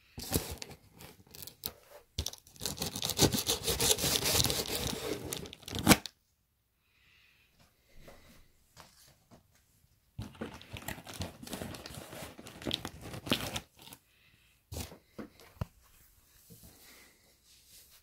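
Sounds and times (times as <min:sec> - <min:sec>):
packing tape ripping off cardboard: 0:02.5 - 0:06.1, 0:10.6 - 0:13.9.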